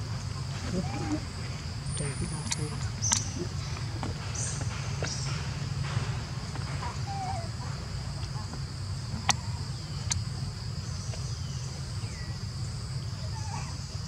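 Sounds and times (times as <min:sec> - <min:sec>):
sharp clicks: 0:01.9 - 0:03.3.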